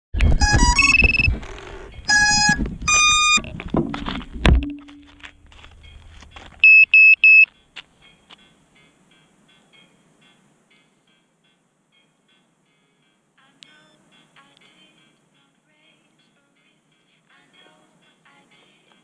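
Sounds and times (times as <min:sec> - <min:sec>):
short high beeps: 0:00.2 - 0:01.4, 0:02.0 - 0:03.5, 0:06.6 - 0:07.5
camera multi-tone chirps: 0:00.6 - 0:01.4, 0:02.1 - 0:03.5, 0:05.8 - 0:07.5
knocks from handling: 0:03.5 - 0:05.2.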